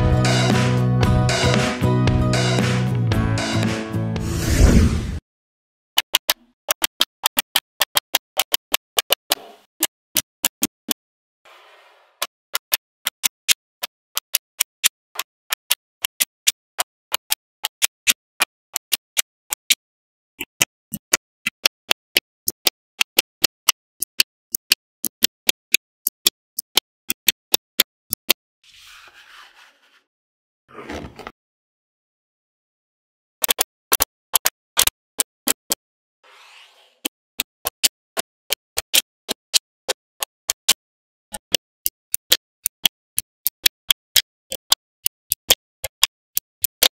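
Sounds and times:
magnetic balls clicking together: 6.0s - 11.0s, 12.5s - 19.8s, 20.4s - 28.4s, 37.0s - 47.0s.

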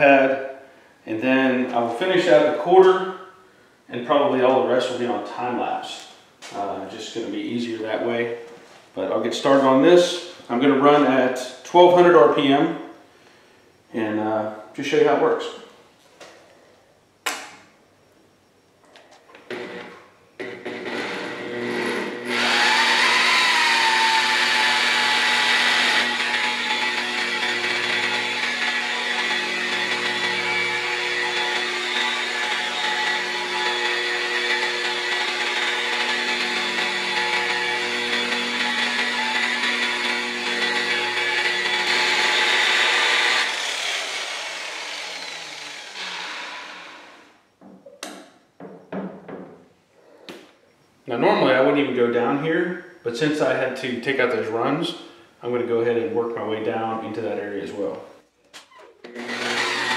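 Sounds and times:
rotary polisher running: 19.5s - 47.3s, 59.1s - 59.9s.

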